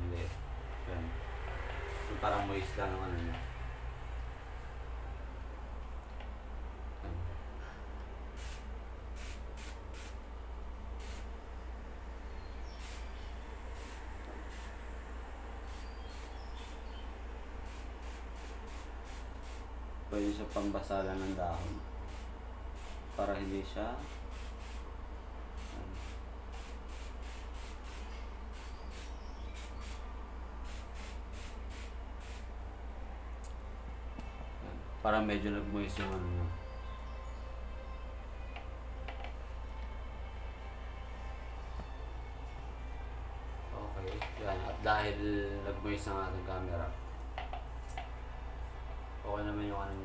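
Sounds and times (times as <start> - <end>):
garden sprayer hissing: 1.7 - 2.8, 8.4 - 10.2, 11.0 - 11.3, 12.6 - 17.0, 17.6 - 19.7, 20.3 - 24.9, 25.6 - 30.0, 30.6 - 32.5.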